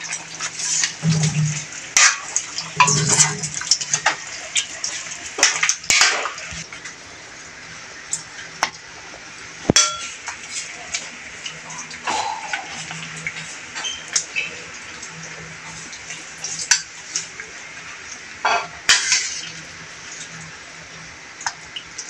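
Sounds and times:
thick stew sloshing: 0:02.7 - 0:04.2
ladle scraping a metal wok: 0:02.8 - 0:04.2.

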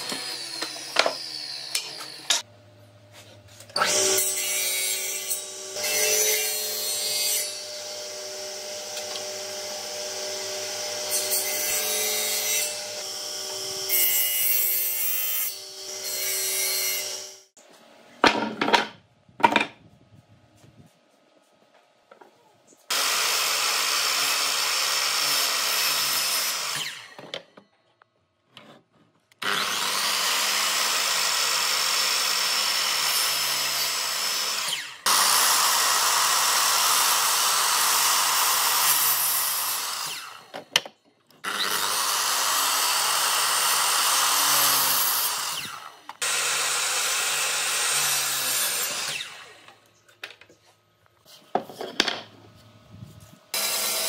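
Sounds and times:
power tool cutting wood: 0:00.0 - 0:02.5, 0:03.7 - 0:17.5, 0:22.9 - 0:27.4, 0:29.4 - 0:40.8, 0:41.4 - 0:49.8, 0:53.5 - 0:54.0.

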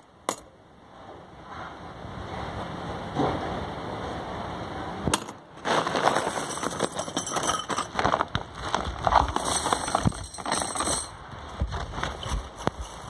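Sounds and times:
small metal parts clinking: 0:06.0 - 0:08.2, 0:09.2 - 0:11.2.

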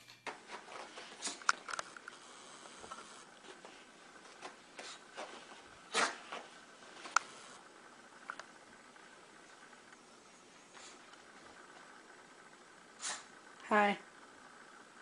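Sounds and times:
fur rubbing on carpet: 0:03.0 - 0:07.6.

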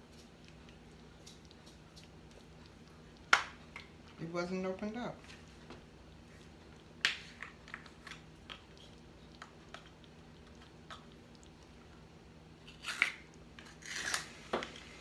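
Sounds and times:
small ticks and scratches: 0:00.0 - 0:04.0.

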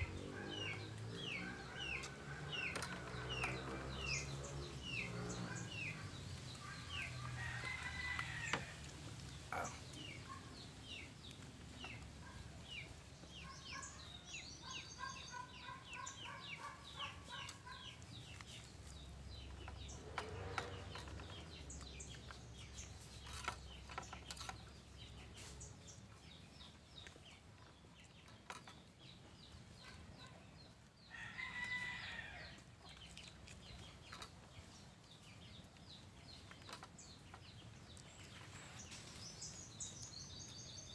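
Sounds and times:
chickens clucking: 0:00.1 - 0:13.9.

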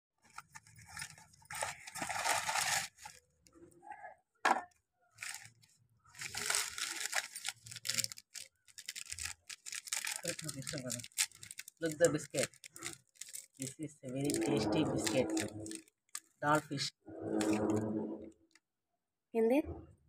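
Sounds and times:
plastic wrappers crinkling: 0:00.2 - 0:03.5, 0:05.2 - 0:16.6.

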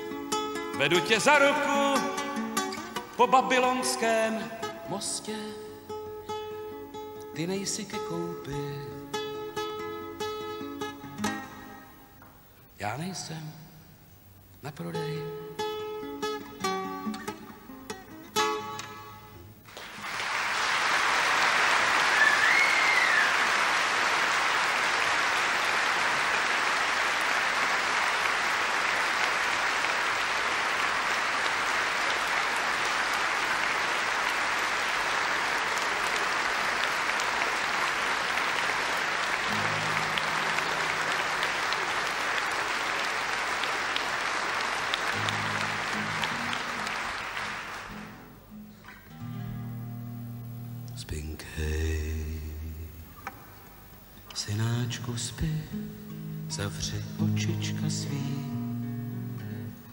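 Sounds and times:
acoustic guitar notes: 0:00.0 - 0:14.0, 0:14.6 - 0:19.7, 0:39.2 - 0:42.2, 0:45.1 - 0:59.9
audience applauding: 0:19.6 - 0:48.5
crowd whistle: 0:21.4 - 0:24.0.

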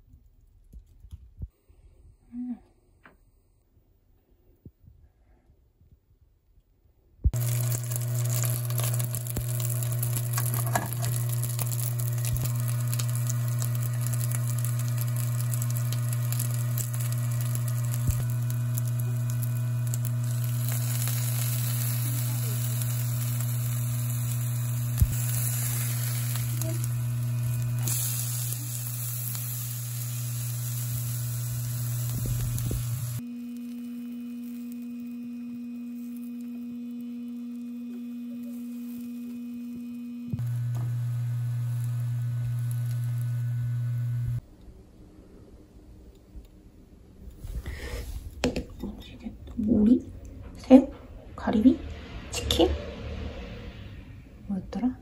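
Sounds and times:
oil sizzling in a pan: 0:07.3 - 0:34.9, 0:40.4 - 0:44.4
low hum: 0:07.3 - 0:55.0.

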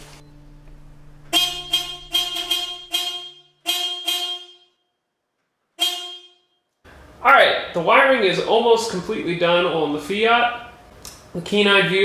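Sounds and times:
car horn toots: 0:01.3 - 0:04.9, 0:05.8 - 0:06.6.

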